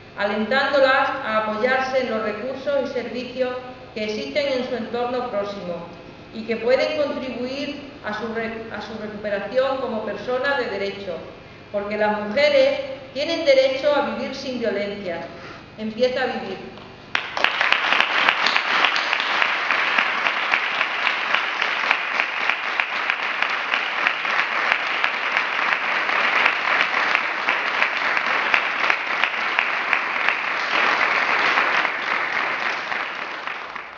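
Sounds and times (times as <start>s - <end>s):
group applause: 17.1s - 33.9s.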